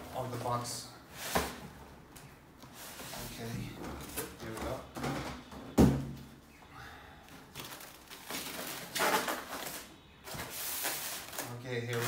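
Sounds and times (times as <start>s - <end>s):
foam packing squeaking: 7.6s - 12.0s.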